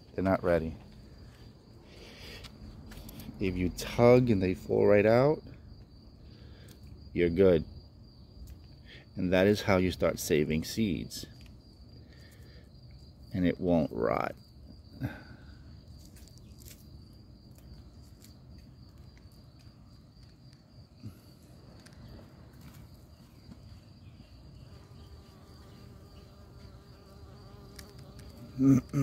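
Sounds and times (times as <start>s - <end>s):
flying insect buzzing: 24.1s - 29.0s.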